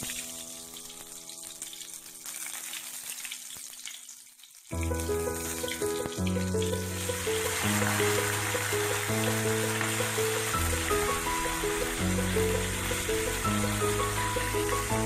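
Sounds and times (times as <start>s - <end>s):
hot oil sizzling: 0.0s - 15.0s
background music: 4.8s - 15.0s.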